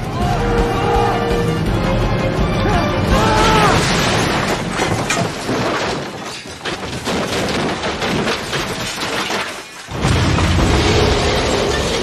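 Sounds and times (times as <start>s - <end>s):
metal and debris crashing: 3.1s - 12.0s
glass shattering: 3.4s - 10.1s
deep crash of truck: 3.4s - 12.0s.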